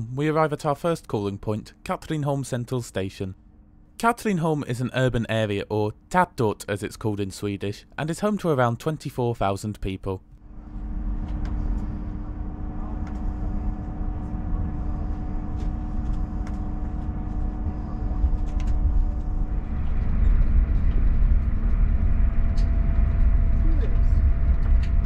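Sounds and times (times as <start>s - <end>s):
electric train hum: 10.3s - 25.0s
train rumbling: 10.5s - 25.0s.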